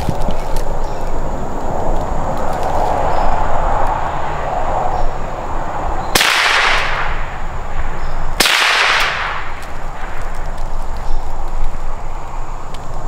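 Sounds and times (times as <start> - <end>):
gunshots with echo: 6.2 - 7.3, 8.4 - 10.2.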